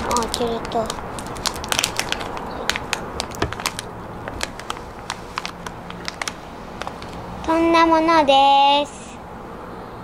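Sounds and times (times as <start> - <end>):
candy wrapper crinkling: 0.0 - 7.2.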